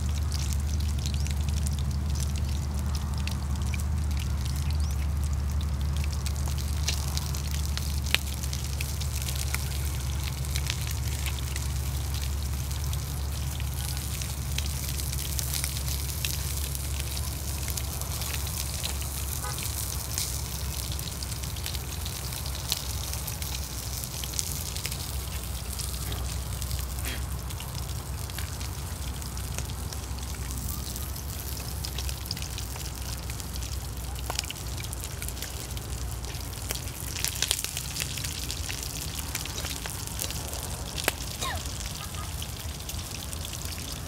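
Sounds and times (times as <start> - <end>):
fish sizzling in a pan: 0.0 - 44.0
wood fire crackling and popping: 0.0 - 44.0.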